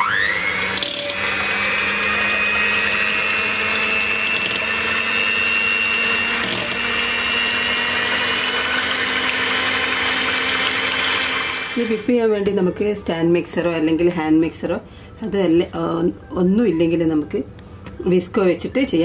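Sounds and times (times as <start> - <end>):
electric hand mixer whirring: 0.0 - 12.3.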